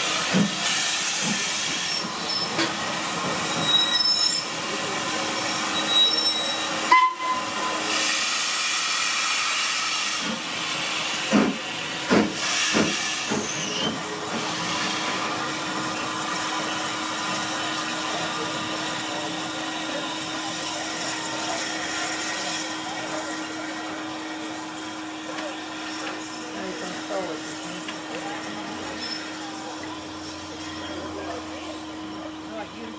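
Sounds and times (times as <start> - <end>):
steam hissing: 0.0 - 24.8
wheels or brakes squealing: 3.4 - 4.6, 5.7 - 7.4, 13.4 - 14.0, 29.0 - 29.4
heavy steam puffs: 7.7 - 18.6.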